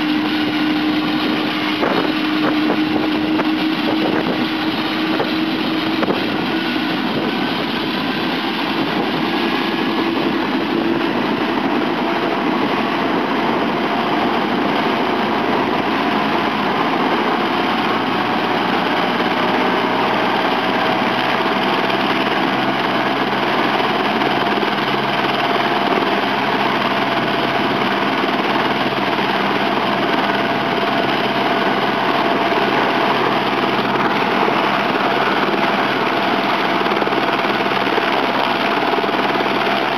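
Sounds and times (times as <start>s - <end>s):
helicopter turbine whine: 0.0s - 39.9s
low hum: 0.0s - 39.9s.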